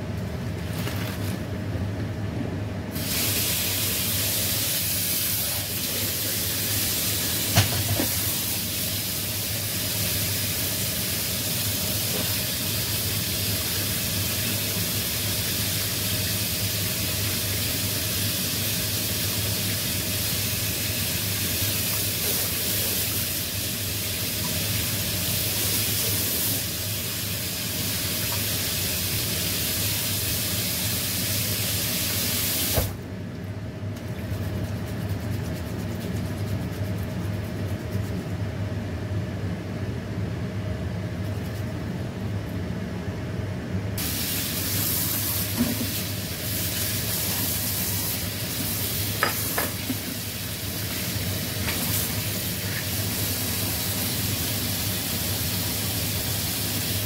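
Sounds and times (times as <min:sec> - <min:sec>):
steady low hum: 0:32.8 - 0:56.6.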